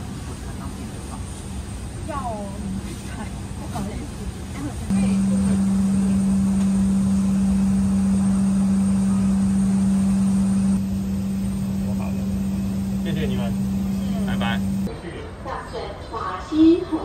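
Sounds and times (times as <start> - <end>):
airliner cabin hum: 0.0 - 14.9.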